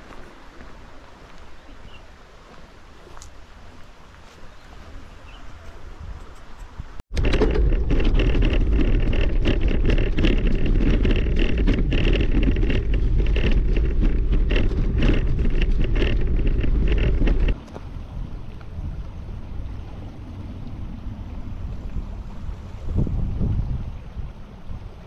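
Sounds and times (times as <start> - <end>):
wind rumbling on microphone: 0.0 - 25.0
vehicle rattling knocks: 7.1 - 17.6
tyres crunching on gravel: 7.2 - 17.6.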